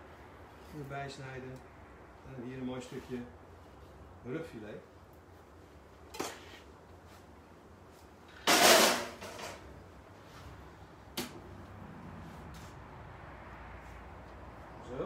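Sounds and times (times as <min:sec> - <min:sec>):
scrape or rustle: 0:02.6 - 0:04.0, 0:06.2 - 0:07.3, 0:12.3 - 0:12.9.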